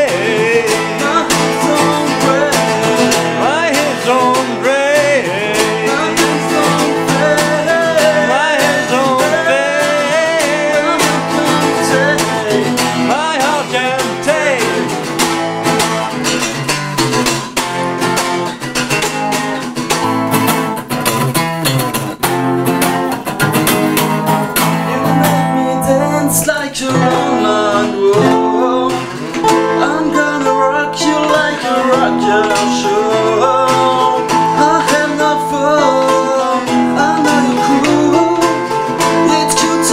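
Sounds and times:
men singing: 0:00.0 - 0:15.1, 0:24.6 - 0:39.9
acoustic guitars strummed: 0:00.0 - 0:39.9.

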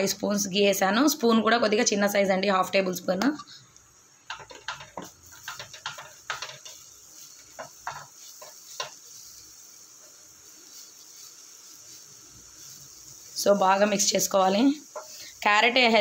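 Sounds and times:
carrot sizzling in ghee: 0:00.0 - 0:16.0
wooden spatula scraping a pan: 0:04.3 - 0:16.0.

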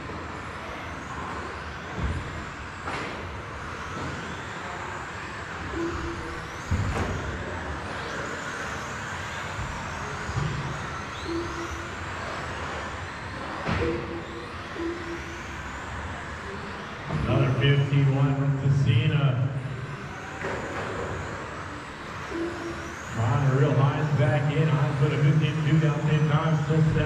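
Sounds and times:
radio-controlled car motors whining: 0:00.0 - 0:27.0
short repeated beeps: 0:05.8 - 0:06.4, 0:11.2 - 0:11.9, 0:13.8 - 0:15.4, 0:22.3 - 0:23.0.

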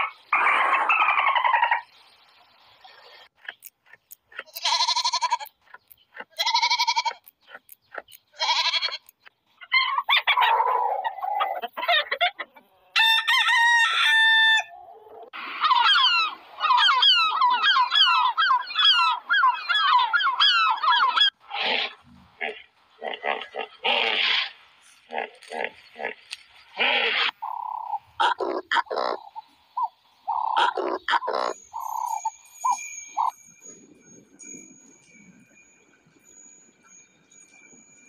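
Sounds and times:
hens clucking: 0:03.4 - 0:13.0, 0:14.7 - 0:33.3
rooster crowing: 0:12.9 - 0:14.9.

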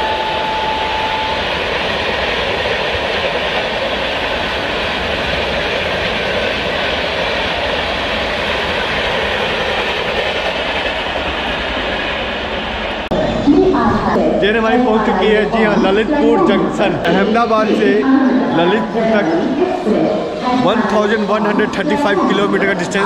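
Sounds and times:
faint whine: 0:00.0 - 0:02.5
train wheels on rail: 0:00.0 - 0:14.8.

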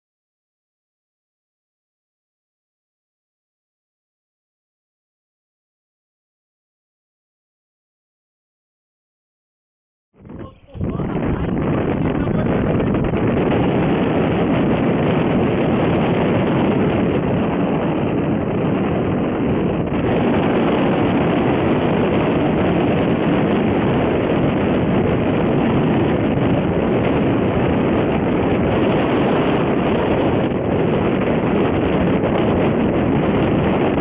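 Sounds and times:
wind buffeting microphone: 0:10.2 - 0:34.0.

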